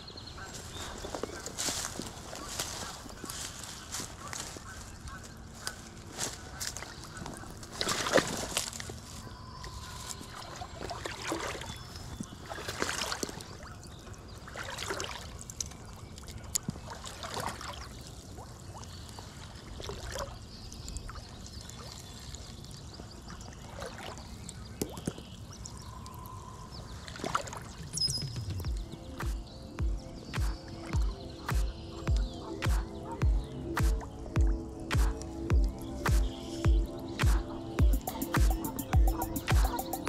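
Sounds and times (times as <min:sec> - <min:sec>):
water sloshing and splashing: 0:05.6 - 0:28.1.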